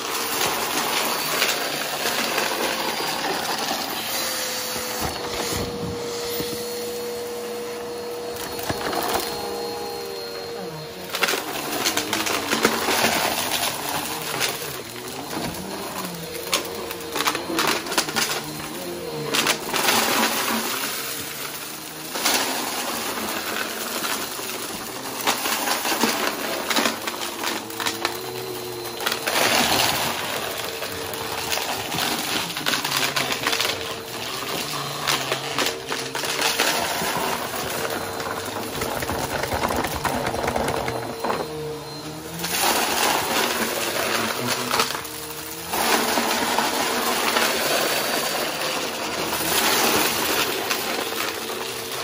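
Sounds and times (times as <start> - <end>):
debris rattling through vacuum: 0.0 - 52.0
vacuum cleaner motor hum: 0.0 - 52.0.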